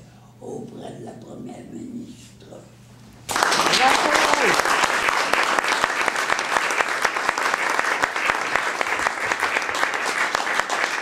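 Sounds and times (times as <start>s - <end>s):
crowd applauding: 3.3s - 11.0s.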